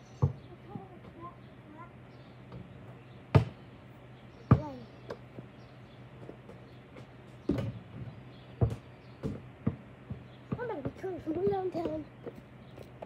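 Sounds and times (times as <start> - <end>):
basketball bouncing on hard ground: 0.2 - 1.2, 3.3 - 3.6, 4.5 - 5.5, 6.2 - 13.0
ball knocking rim and backboard: 3.3 - 3.6, 6.4 - 12.0.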